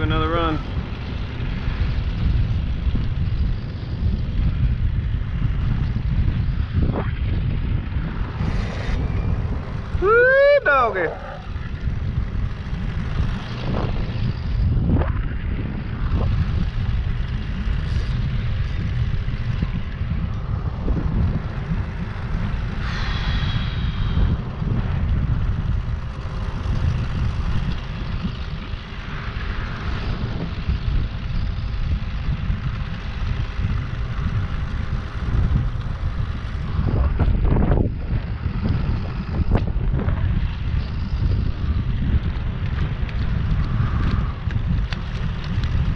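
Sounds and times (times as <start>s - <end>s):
wind buffeting microphone: 0.0s - 45.9s
brief high whine: 22.6s - 25.6s.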